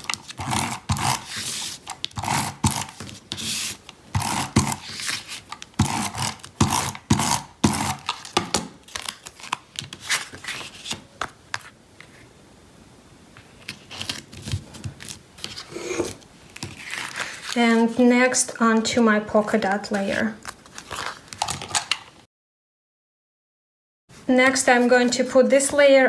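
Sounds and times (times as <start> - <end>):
tape runner scraping on card: 0.0 - 11.0.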